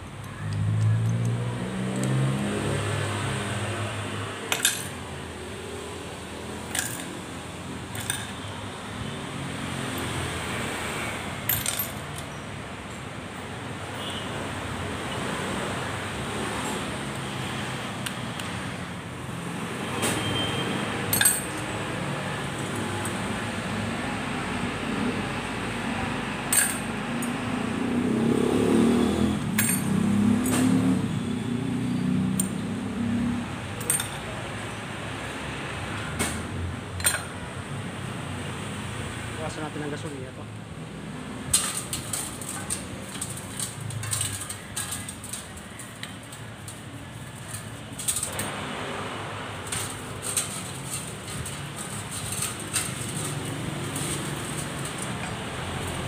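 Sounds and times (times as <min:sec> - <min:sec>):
metal clutch plates clinking: 0:04.4 - 0:05.1, 0:06.5 - 0:08.6, 0:11.4 - 0:12.4, 0:20.0 - 0:23.3, 0:26.5 - 0:27.4, 0:29.4 - 0:31.3, 0:33.8 - 0:34.4, 0:37.0 - 0:37.5, 0:41.2 - 0:56.0
paintbrush scrubbing metal parts: 0:41.5 - 0:56.0.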